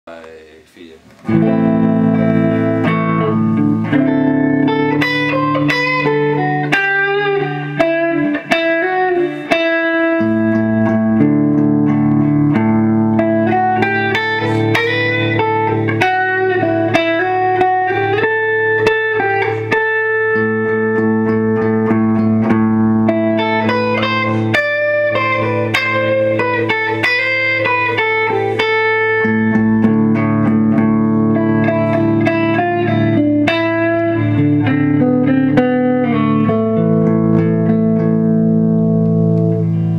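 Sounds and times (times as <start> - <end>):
clean electric guitar chords and melody: 1.1 - 39.9.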